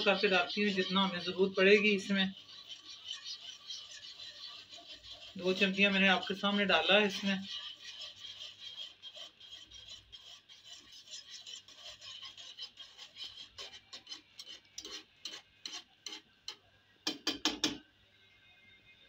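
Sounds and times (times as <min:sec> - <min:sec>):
whisk scraping in pot: 0:00.0 - 0:16.6
knocks on pan: 0:17.1 - 0:17.8.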